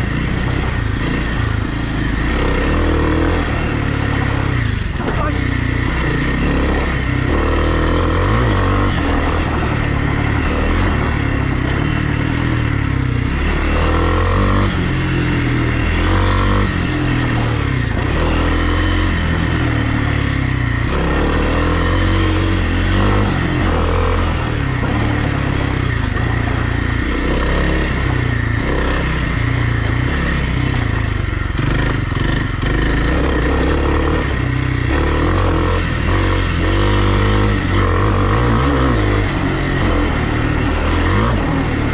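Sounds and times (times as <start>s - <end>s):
dirt bike engine revving: 0.0s - 41.9s.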